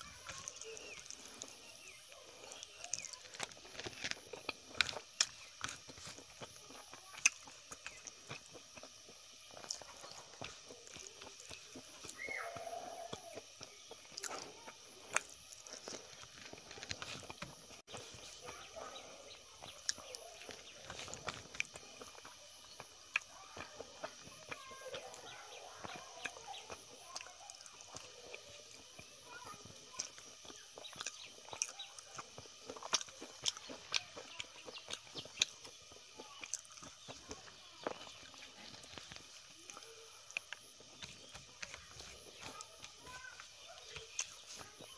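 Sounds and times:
fingers squishing food: 0:00.0 - 0:44.9.

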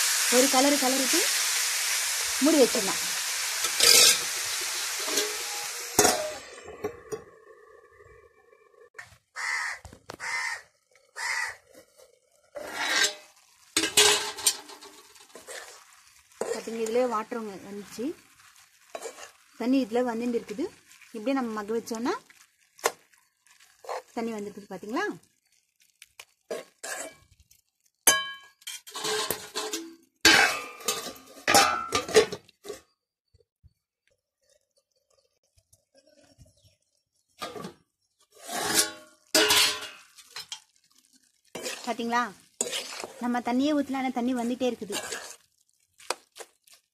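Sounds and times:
spoon scraping a metal pan: 0:03.6 - 0:07.2, 0:11.6 - 0:17.2, 0:18.8 - 0:19.5, 0:23.6 - 0:24.2, 0:26.5 - 0:27.4, 0:28.1 - 0:32.8, 0:37.4 - 0:40.6, 0:41.5 - 0:43.4, 0:44.2 - 0:45.5
metal lid clattering on pan: 0:06.0 - 0:06.4, 0:13.8 - 0:15.0, 0:28.1 - 0:32.4, 0:38.6 - 0:40.6
crow cawing: 0:09.3 - 0:11.6.

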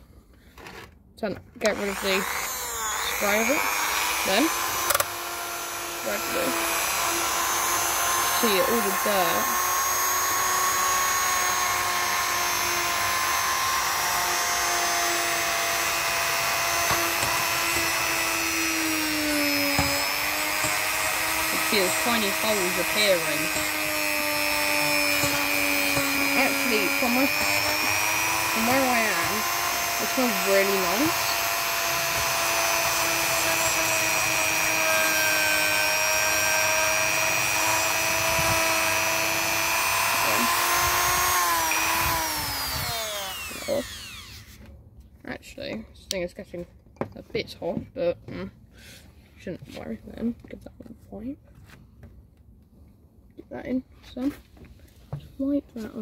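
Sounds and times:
rotary tool whining on metal: 0:01.6 - 0:44.7
bit scrubbing metal: 0:01.7 - 0:44.5.

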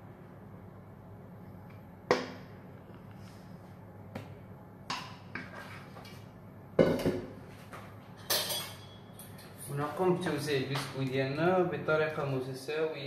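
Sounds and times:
metal bowl knocking on worktop: 0:06.8 - 0:07.3.

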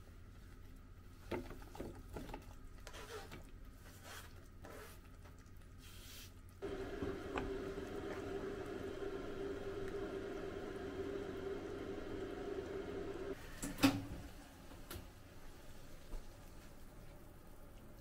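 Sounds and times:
pot simmering hiss: 0:02.9 - 0:18.0
steady hum: 0:06.6 - 0:13.4.

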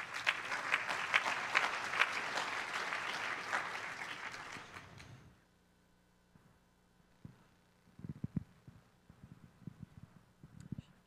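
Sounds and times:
crowd applauding: 0:00.0 - 0:05.2.

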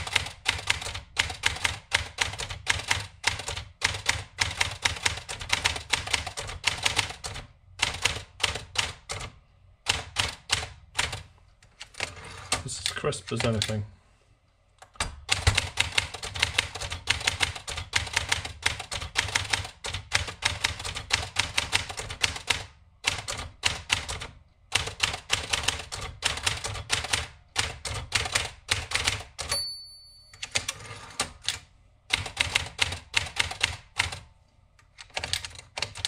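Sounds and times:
manual typewriter typing: 0:00.0 - 0:13.8, 0:15.0 - 0:29.6, 0:30.3 - 0:34.3, 0:34.9 - 0:36.0
typewriter bell ring: 0:29.4 - 0:31.2.

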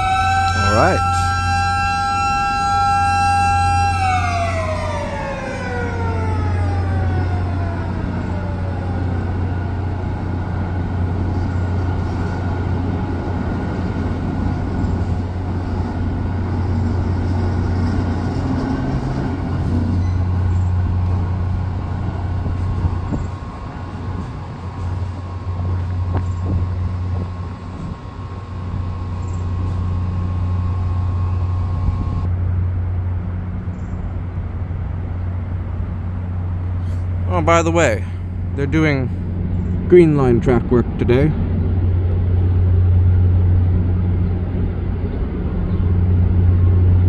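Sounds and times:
mechanical siren winding down: 0:00.0 - 0:09.8
steady low hum: 0:20.2 - 0:47.0.

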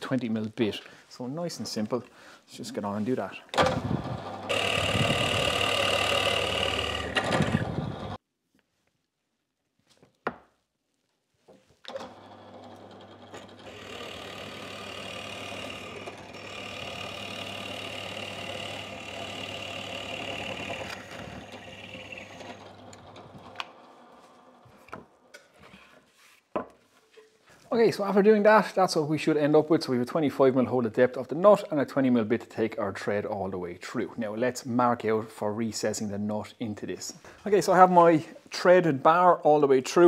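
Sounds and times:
drill press humming and whining: 0:03.9 - 0:08.2, 0:11.9 - 0:24.6.

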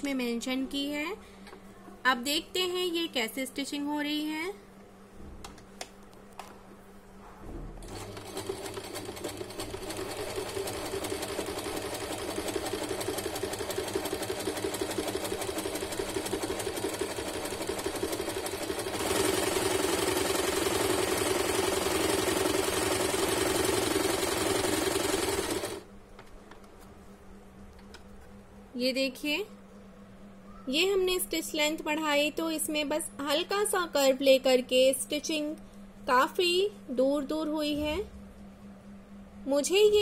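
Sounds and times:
electric sewing machine stitching: 0:07.8 - 0:25.8.

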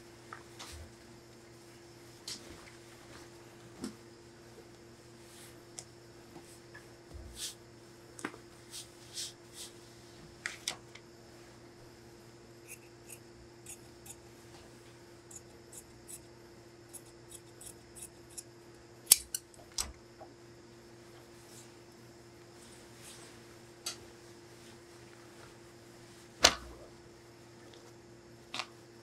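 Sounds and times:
shears snipping through fabric: 0:12.7 - 0:14.2, 0:16.9 - 0:18.5, 0:19.1 - 0:19.4.

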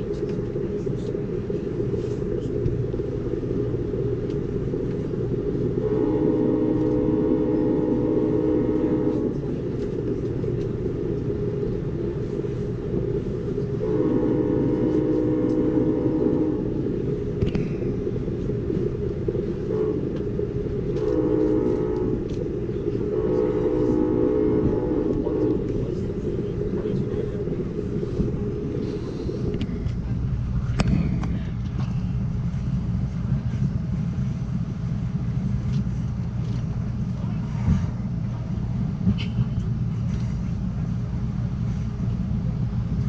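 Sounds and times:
moving train rumble: 0:00.0 - 0:43.0
train air horn blasts: 0:05.8 - 0:09.5, 0:13.8 - 0:16.8, 0:19.7 - 0:20.0, 0:20.9 - 0:25.9.

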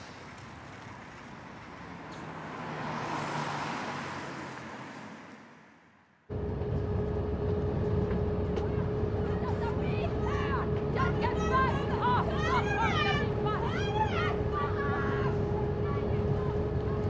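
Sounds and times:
tyre hiss on wet street: 0:00.0 - 0:05.5
bus engine hum and rumble: 0:06.2 - 0:17.0.

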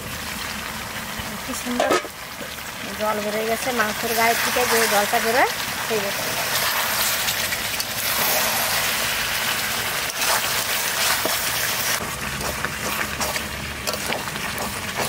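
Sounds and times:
curry sizzling: 0:00.0 - 0:15.0
metal spatula scraping: 0:01.7 - 0:02.1, 0:10.1 - 0:15.0.

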